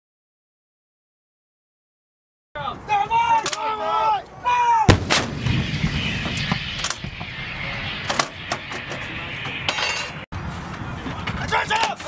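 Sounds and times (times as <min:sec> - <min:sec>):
low rumble of gunshot: 0:04.9 - 0:08.9.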